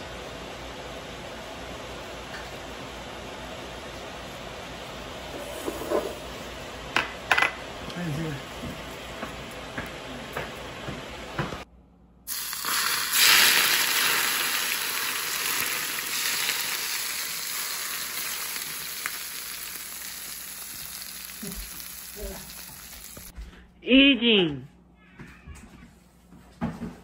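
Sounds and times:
hot oil sizzling on spices: 12.3s - 23.3s.

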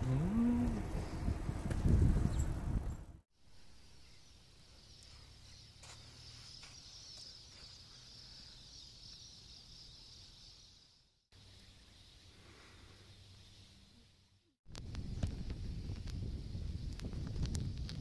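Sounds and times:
wind rumble on microphone: 0.0s - 3.2s, 14.7s - 18.0s.

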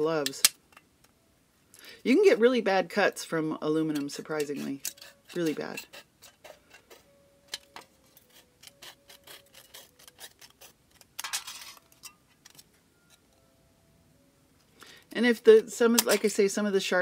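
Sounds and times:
shears snipping thin metal: 3.8s - 6.8s, 7.5s - 12.6s, 15.8s - 16.4s
rasping cut: 8.1s - 11.1s.

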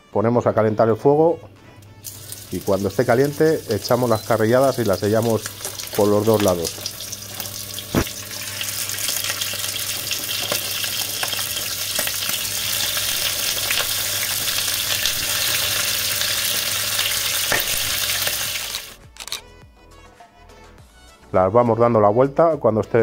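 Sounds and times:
meat sizzling in hot oil: 1.9s - 19.0s.

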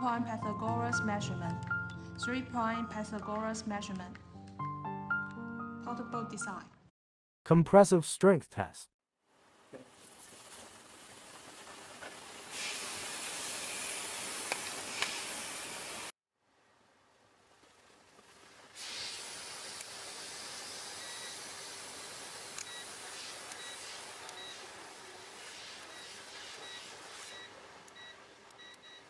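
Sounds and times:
outdoor background hiss: 9.3s - 29.0s.

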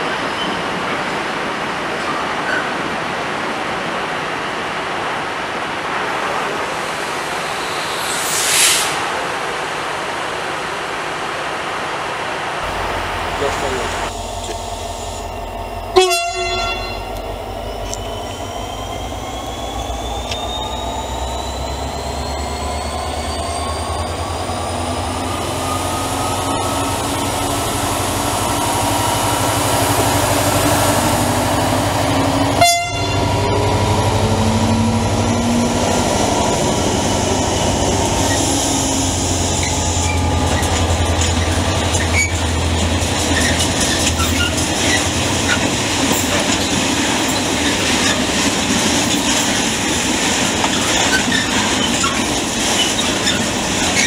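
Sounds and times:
freight train rumbling past: 0.0s - 54.0s
rising whine: 6.5s - 9.9s, 12.6s - 46.6s
train horn toots: 15.9s - 17.2s, 32.5s - 33.4s.

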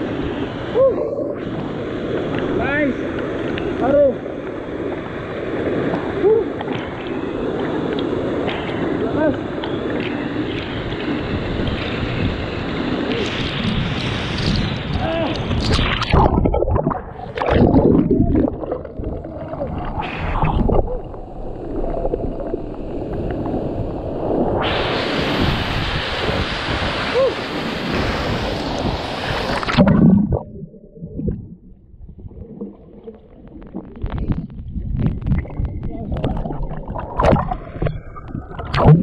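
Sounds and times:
louder brighter water rush: 0.0s - 39.0s
waterfall rushing and splashing: 24.7s - 29.9s.

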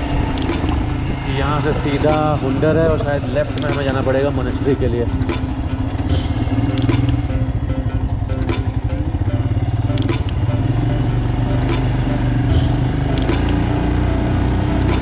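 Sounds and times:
motorcycle engine running: 0.0s - 15.0s
light clicks and rattles: 2.0s - 5.9s.

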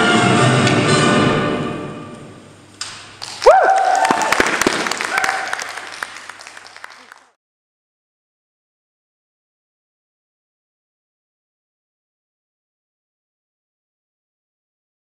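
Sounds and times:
orchestral music: 0.0s - 2.4s
audience clapping and cheering: 3.1s - 7.4s
person whooping: 3.4s - 5.8s.

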